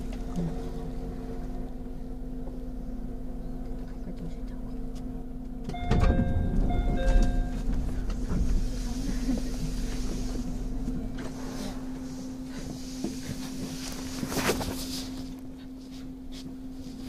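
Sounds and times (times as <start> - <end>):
electric train humming: 0.0 - 17.0
train clatter and rumble: 0.0 - 17.0
two-note electronic chime: 5.8 - 7.7.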